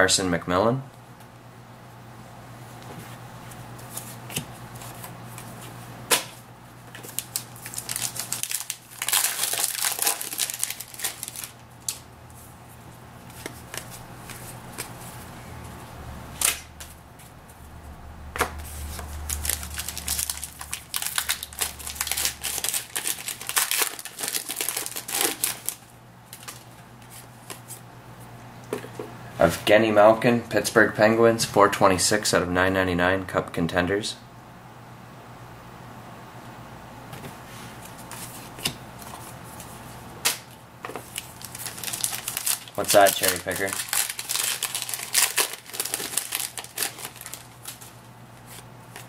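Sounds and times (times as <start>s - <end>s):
steady low hum: 0.0s - 49.0s
card pack wrappers crinkling: 6.9s - 12.0s, 18.9s - 27.8s, 41.0s - 49.0s
cards shuffled by hand: 18.4s - 27.8s, 40.9s - 49.0s.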